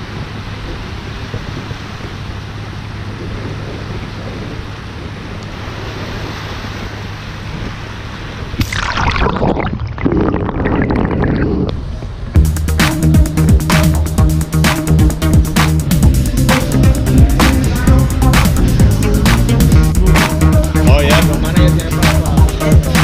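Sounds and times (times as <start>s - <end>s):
wind on microphone: 0.0s - 12.4s
electronic dance music: 12.8s - 23.0s.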